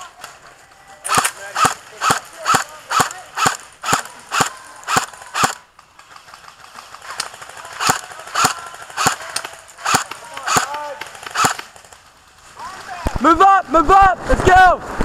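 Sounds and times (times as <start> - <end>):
airsoft rifle shots: 1.0 - 5.7, 7.0 - 12.1.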